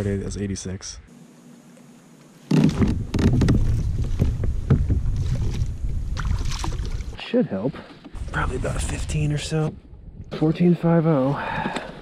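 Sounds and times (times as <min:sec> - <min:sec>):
water slapping: 0:04.9 - 0:07.2
fish splashing at surface: 0:06.2 - 0:07.2.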